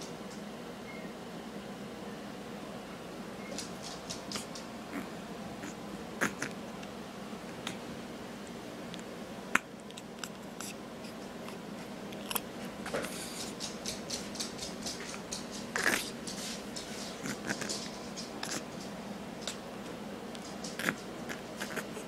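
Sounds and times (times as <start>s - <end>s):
faint steady hum: 0.0s - 22.0s
small clicks and rustles: 3.5s - 4.7s, 12.2s - 22.0s.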